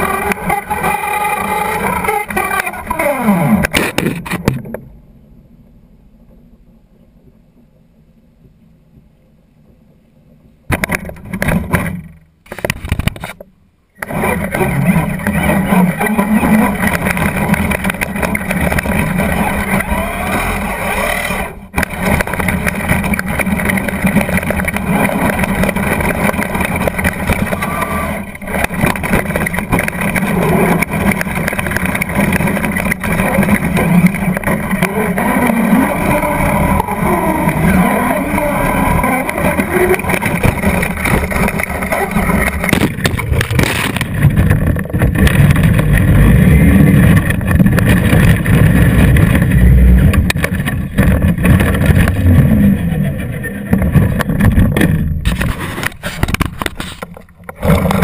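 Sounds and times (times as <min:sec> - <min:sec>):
toy truck motor and drivetrain: 0:00.0 - 0:03.4, 0:14.0 - 0:58.0
tyres rumbling on gravel: 0:14.0 - 0:58.0.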